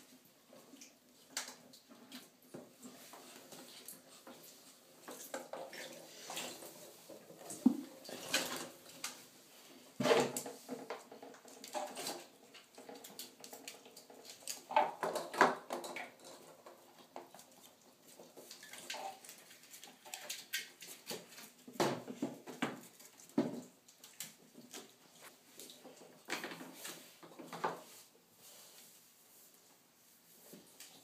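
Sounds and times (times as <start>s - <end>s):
plastic toys clattering in tub: 5.1s - 9.2s, 10.0s - 17.4s.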